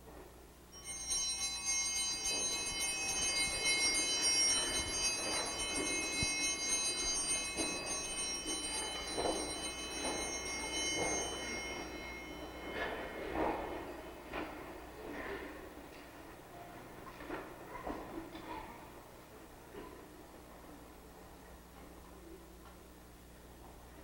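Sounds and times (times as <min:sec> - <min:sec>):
bell ringing: 0:00.7 - 0:14.6
shuffles and knocks of kneeling: 0:00.9 - 0:14.6.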